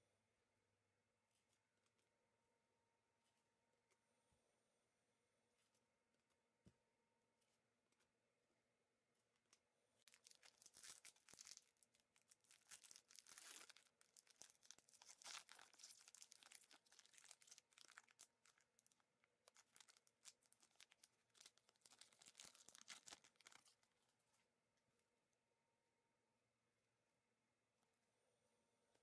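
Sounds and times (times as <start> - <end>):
card pack wrapper tearing: 10.1 - 23.8.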